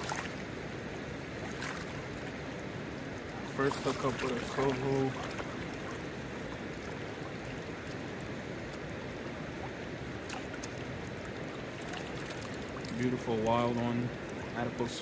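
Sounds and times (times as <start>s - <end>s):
river rushing over stones: 0.0s - 15.0s.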